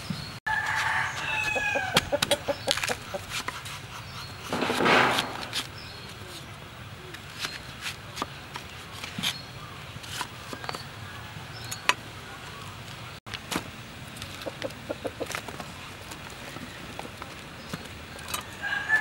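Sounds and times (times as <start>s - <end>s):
hen clucking: 1.4s - 4.5s, 14.3s - 15.4s.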